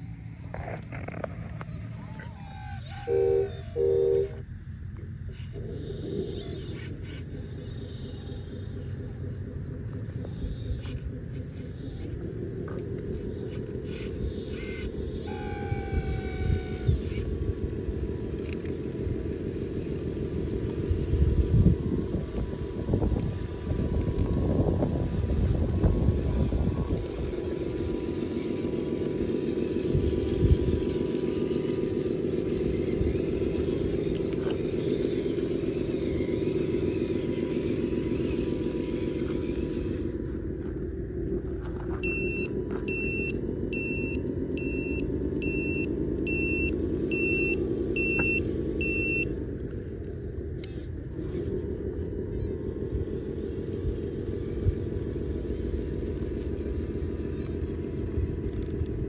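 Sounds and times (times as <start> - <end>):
simulated diesel truck engine: 0.0 - 59.0
high back-up beeper: 3.0 - 4.4.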